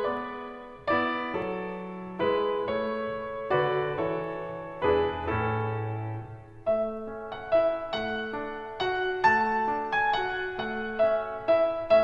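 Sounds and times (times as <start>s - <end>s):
slow piano chords: 0.0s - 12.0s.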